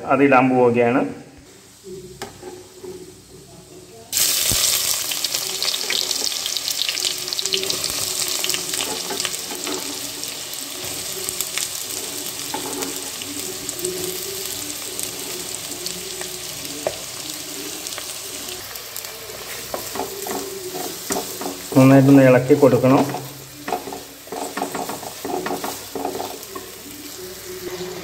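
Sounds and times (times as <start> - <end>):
onions sizzling in hot oil: 4.1 - 28.0
stirring scrapes in pan: 12.5 - 13.2, 22.8 - 26.7.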